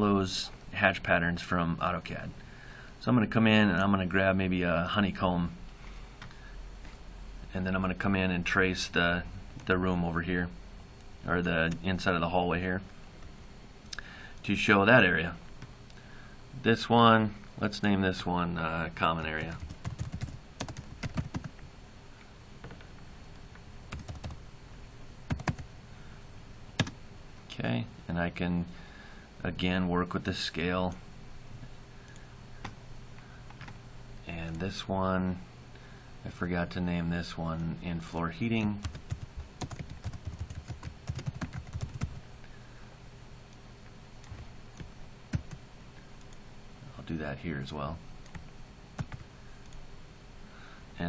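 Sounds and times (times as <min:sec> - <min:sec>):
computer keyboard typing: 0:19.4 - 0:21.6, 0:23.9 - 0:24.4, 0:25.3 - 0:25.7, 0:38.8 - 0:42.2, 0:44.3 - 0:45.6, 0:49.0 - 0:49.2.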